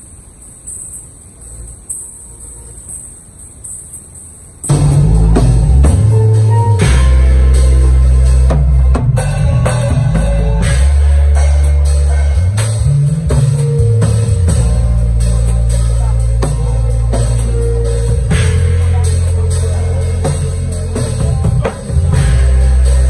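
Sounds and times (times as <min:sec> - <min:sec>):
drum kit playing: 0:00.0 - 0:23.0
backing music with bass line: 0:04.6 - 0:23.0.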